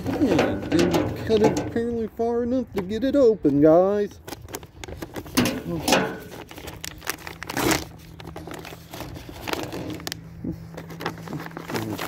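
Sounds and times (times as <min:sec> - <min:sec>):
plastic bag crinkling: 0:04.2 - 0:12.0.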